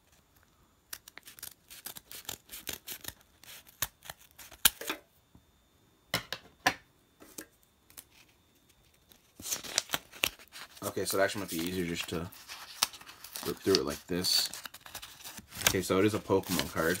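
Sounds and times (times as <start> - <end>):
scissors snipping paper: 0.9 - 4.8.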